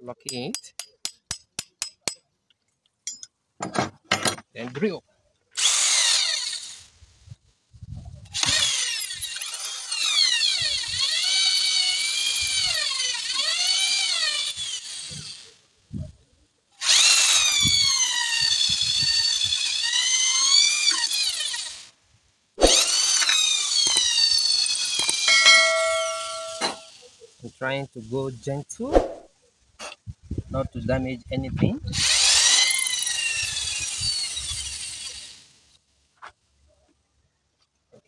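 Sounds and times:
electric drill whining: 5.6s - 6.8s, 8.4s - 15.5s, 16.8s - 21.9s, 22.7s - 26.9s, 32.0s - 35.4s.

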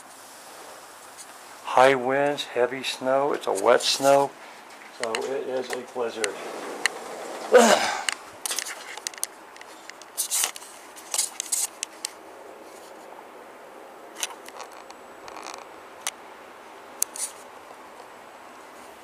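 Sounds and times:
camera handling scratches: 8.5s - 12.1s.

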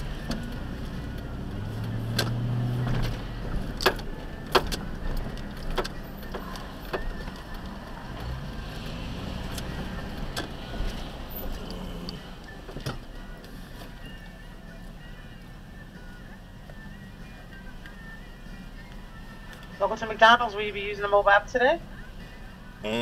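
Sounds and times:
car engine running: 0.0s - 23.0s
sharp clicks and knocks: 2.1s - 3.2s, 3.8s - 7.4s.

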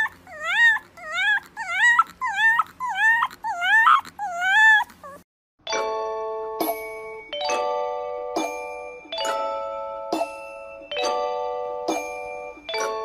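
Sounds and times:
puppy howling and whining: 0.0s - 5.3s.

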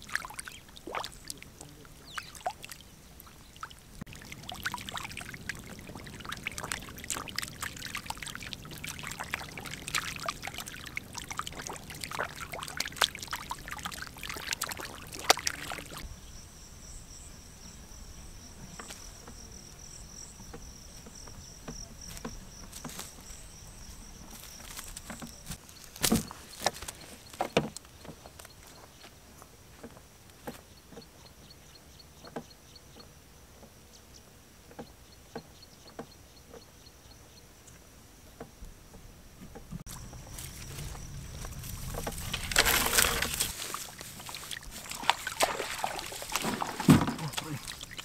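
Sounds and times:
fish splashing in water: 0.0s - 16.0s, 39.9s - 48.0s
insects trilling: 0.0s - 28.9s, 39.9s - 48.0s
footsteps on dry soil: 39.9s - 48.0s.

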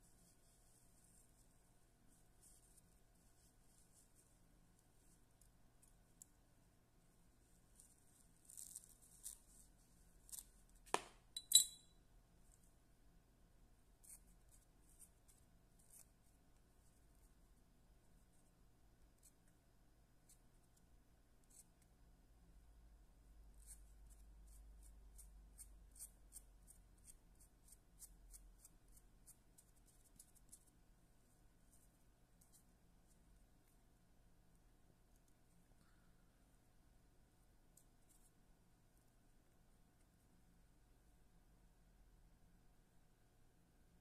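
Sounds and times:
crisp ticks and scratches: 7.4s - 10.8s, 14.0s - 17.0s, 23.6s - 30.8s
metallic clink of tools: 11.4s - 12.0s.

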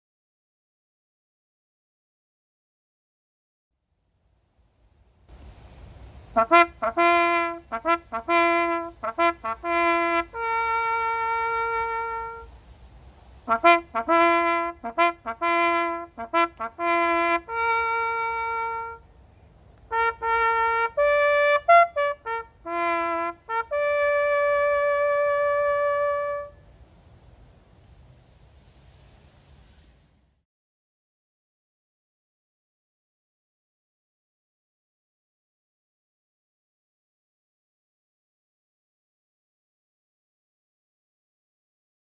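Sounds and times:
solo trumpet call: 6.2s - 12.6s, 13.4s - 19.2s, 19.8s - 26.8s.

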